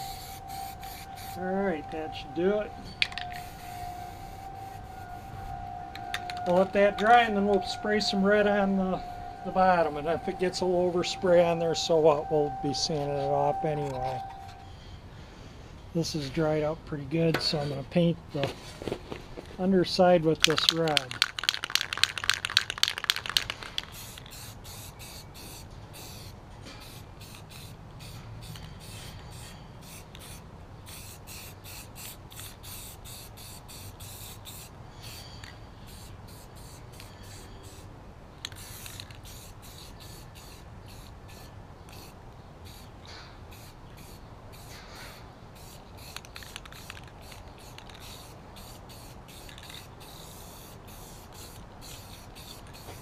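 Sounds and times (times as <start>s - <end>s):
spray can rattling: 0.0s - 1.4s, 3.0s - 5.3s, 6.0s - 6.6s, 20.4s - 37.8s, 38.4s - 42.9s, 43.5s - 53.0s
spray paint hissing bursts: 0.0s - 1.4s, 3.0s - 6.7s, 20.4s - 53.0s.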